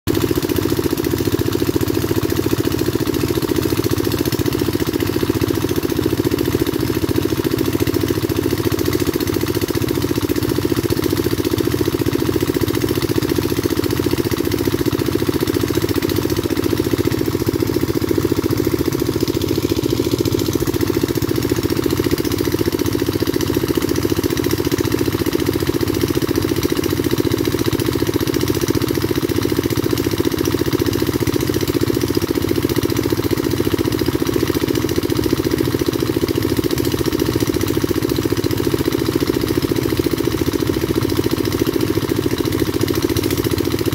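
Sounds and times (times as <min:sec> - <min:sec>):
water pump engine running: 0:00.1 - 0:43.9.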